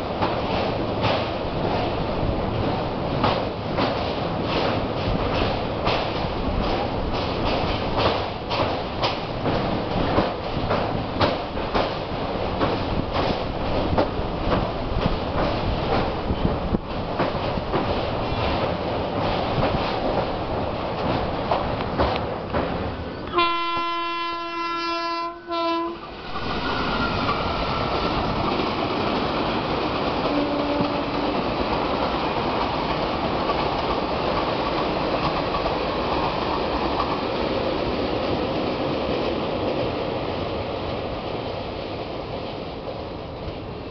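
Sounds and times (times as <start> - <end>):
train wheels clattering: 0.0 - 24.2, 26.2 - 40.5
locomotive horn blast: 23.2 - 27.2, 30.3 - 31.3.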